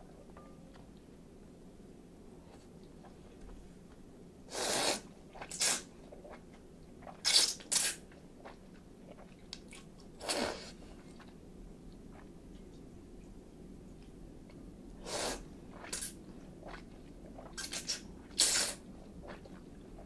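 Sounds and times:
noodles being slurped: 4.5s - 6.4s.

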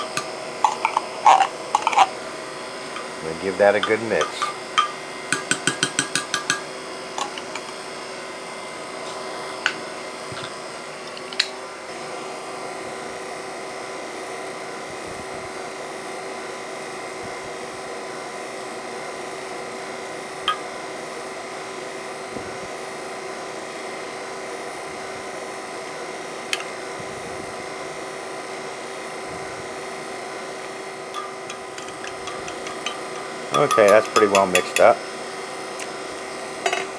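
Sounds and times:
steady machine hum: 0.0s - 36.9s
spoon clinking against glass: 3.8s - 7.5s, 31.2s - 35.0s.

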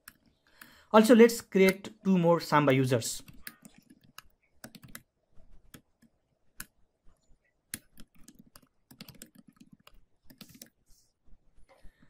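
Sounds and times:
keyboard typing: 0.0s - 0.8s, 3.2s - 10.8s.

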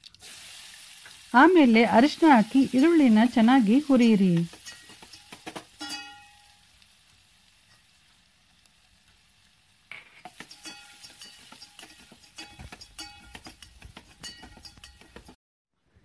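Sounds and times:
onions sizzling in oil: 0.0s - 15.4s
metal spoon scraping a pot: 9.9s - 15.4s
metallic clinks and ringing: 14.2s - 15.3s.

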